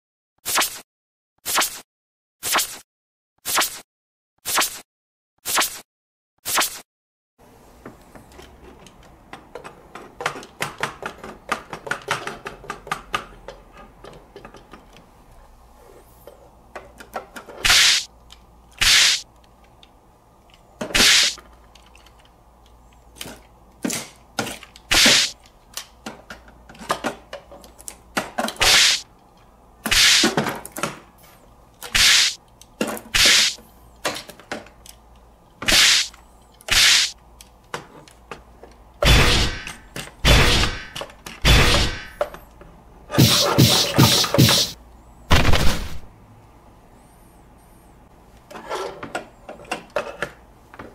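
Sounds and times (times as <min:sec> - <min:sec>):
sticky tape tearing off plastic: 0:01.4 - 0:01.8, 0:04.4 - 0:04.8, 0:05.4 - 0:05.8, 0:17.6 - 0:18.1, 0:18.8 - 0:19.2, 0:24.9 - 0:25.4, 0:28.6 - 0:29.0, 0:31.9 - 0:32.4, 0:33.2 - 0:33.6, 0:35.7 - 0:36.1, 0:36.7 - 0:37.1
plastic toys clicking and tapping: 0:08.3 - 0:15.1, 0:18.2 - 0:28.6.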